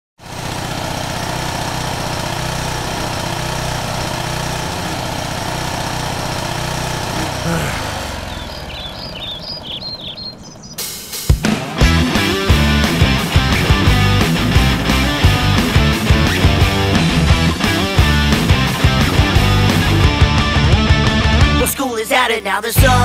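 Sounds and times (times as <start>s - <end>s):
lawn mower engine running: 0.2s - 21.8s
high chirps: 7.8s - 11.5s.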